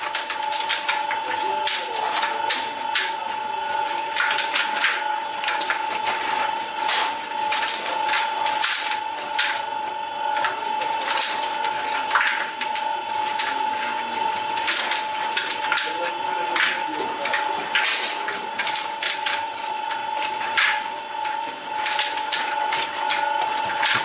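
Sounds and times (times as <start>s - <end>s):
high-pitched machine hum: 0.0s - 24.0s
knocks and clatter of work: 0.0s - 24.0s.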